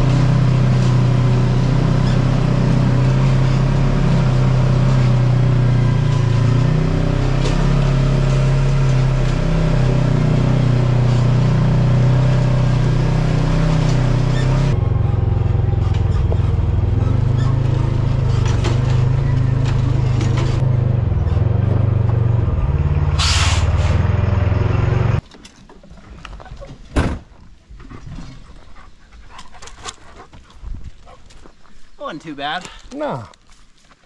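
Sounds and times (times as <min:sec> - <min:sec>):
vehicle engines droning: 0:00.0 - 0:25.2
outdoor ambience: 0:00.0 - 0:34.0
air hiss burst: 0:23.2 - 0:23.8.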